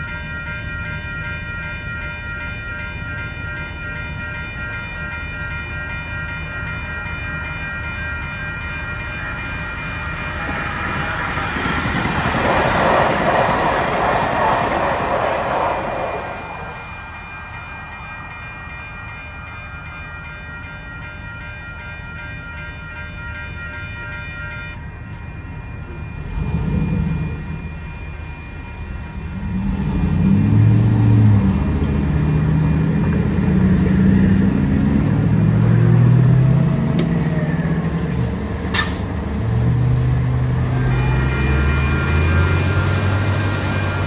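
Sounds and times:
railroad crossing bell ringing: 0.0 - 12.5, 13.3 - 44.0
vehicle engines pulling away: 26.2 - 27.4, 29.4 - 44.0.

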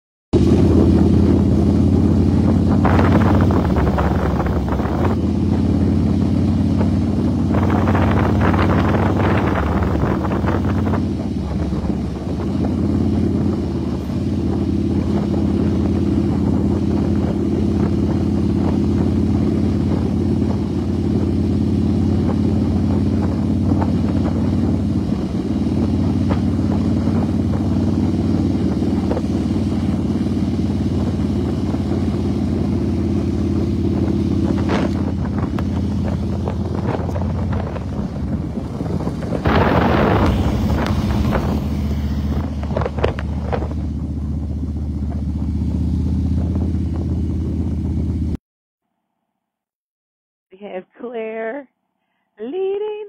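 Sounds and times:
motorcycle engine running: 0.4 - 48.4
rushing noise: 23.7 - 47.2.

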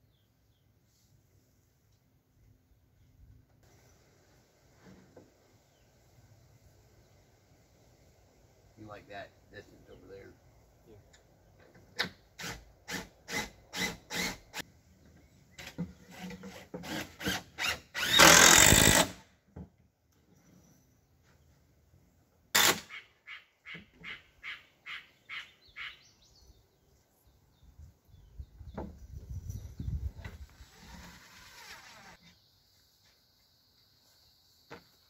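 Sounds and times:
power drill driving screws: 12.4 - 14.6, 16.1 - 19.2, 22.6 - 22.8.

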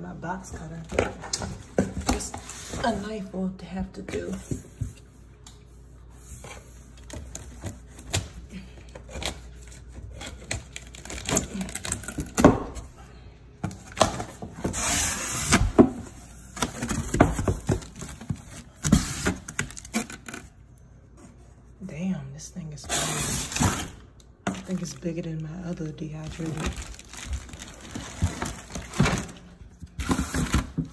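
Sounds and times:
cardboard box and tape handling: 13.6 - 20.5, 26.2 - 30.9
plastic bag crinkling: 23.4 - 29.6.

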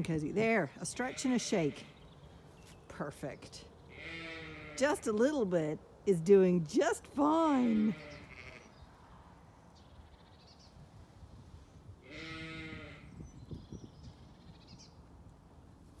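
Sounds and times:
sheep bleating: 3.9 - 5.0, 7.6 - 8.8, 12.0 - 13.1.

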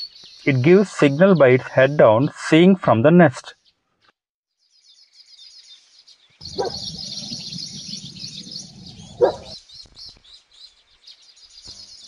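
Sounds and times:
birds chattering and chirping: 0.0 - 2.3, 4.6 - 12.0
lower bird calls: 4.9 - 12.0.

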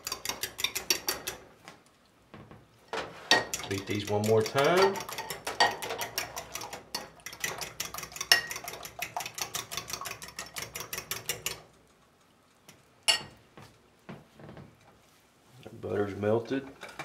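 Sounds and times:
fork beating eggs in bowl: 0.0 - 1.5, 3.3 - 13.2.

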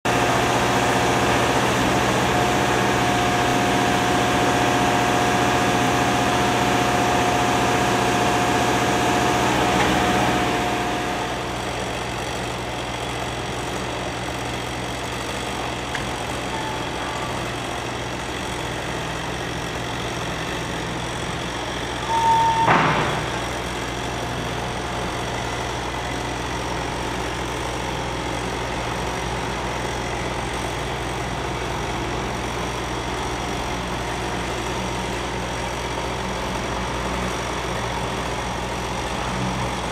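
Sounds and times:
vehicle engine running: 0.0 - 22.2
short loud burst with tone: 22.0 - 23.5.

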